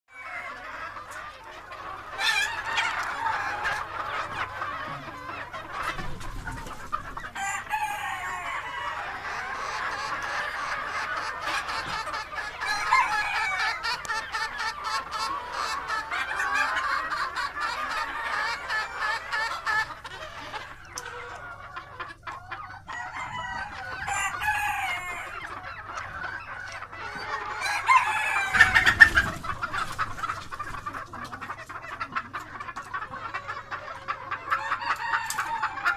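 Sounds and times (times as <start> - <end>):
chickens clucking and calling: 0.0 - 35.9
rooster crowing: 7.4 - 9.2, 12.6 - 13.9, 22.9 - 25.4, 27.6 - 28.9, 34.6 - 35.9.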